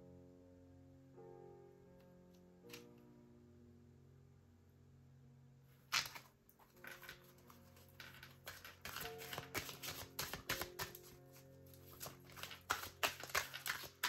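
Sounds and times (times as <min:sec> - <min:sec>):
soft background music: 0:00.0 - 0:14.0
cards being shuffled: 0:05.9 - 0:14.0.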